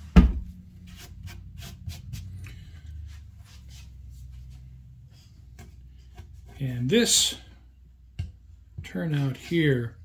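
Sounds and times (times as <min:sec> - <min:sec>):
thump: 0:00.1 - 0:00.5
scratchy brushing: 0:00.8 - 0:02.4.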